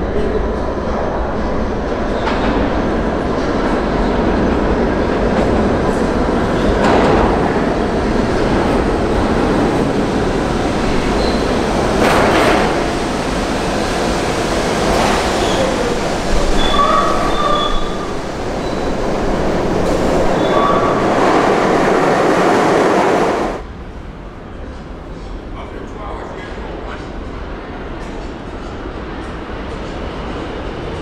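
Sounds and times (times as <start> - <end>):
subway train rumbling on rails: 0.0 - 31.0
high brake squeal: 11.2 - 11.5, 16.4 - 19.0, 20.4 - 21.1.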